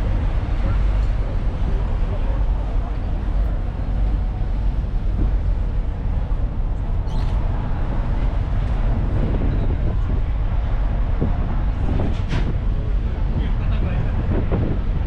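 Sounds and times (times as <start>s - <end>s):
ferry engine low rumble: 0.0s - 15.0s.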